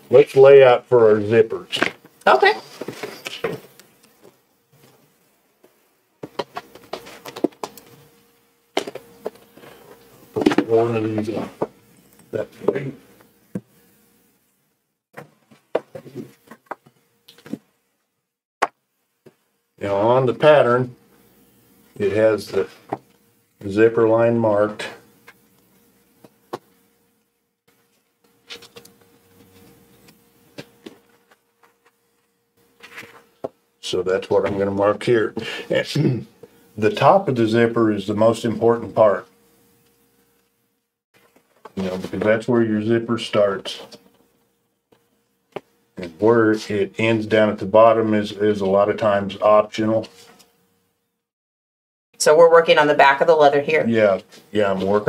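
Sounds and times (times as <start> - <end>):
faint steady hum: 0.0 - 51.2
taps clicks and rustles: 5.6 - 7.9
soft scratchy rubbing on paper: 27.7 - 33.3.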